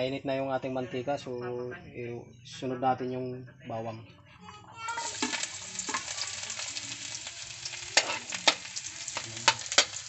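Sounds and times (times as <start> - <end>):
garlic sizzling in hot oil: 5.0 - 10.0
metal spoon clicking against pan: 8.0 - 10.0.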